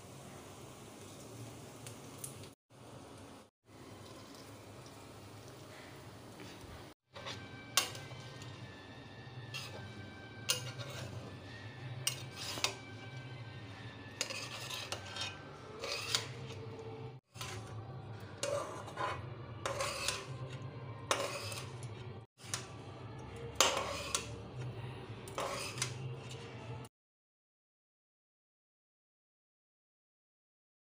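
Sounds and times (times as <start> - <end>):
metal spoon scraping steel pan: 7.1 - 26.9.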